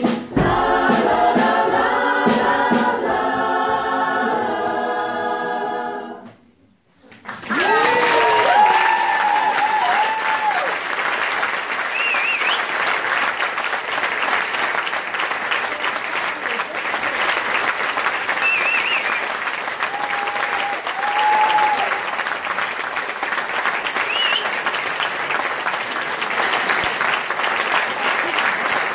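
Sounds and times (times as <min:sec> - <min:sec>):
audience applauding: 0:07.0 - 0:28.9.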